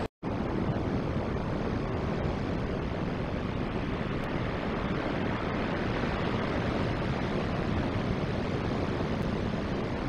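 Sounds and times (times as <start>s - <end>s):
ocean surf breaking: 0.0s - 10.0s
wind: 0.0s - 10.0s.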